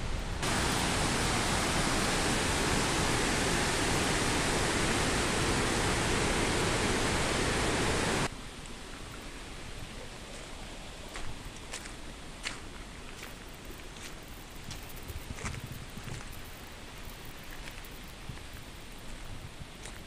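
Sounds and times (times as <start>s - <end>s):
river rushing: 0.4s - 8.3s.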